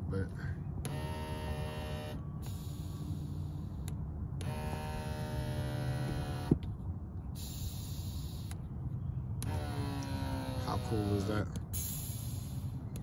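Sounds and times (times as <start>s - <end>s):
seat motor humming: 0.8s - 2.6s, 3.2s - 6.7s, 9.4s - 11.6s.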